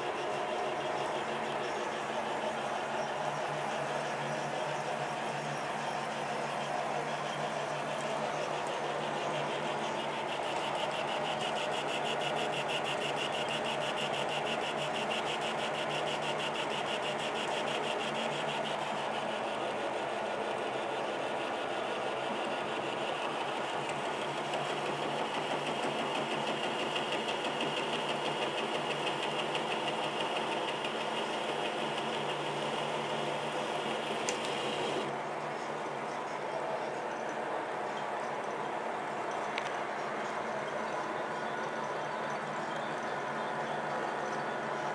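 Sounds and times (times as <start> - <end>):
fast ticking rattle: 22.0 - 35.0.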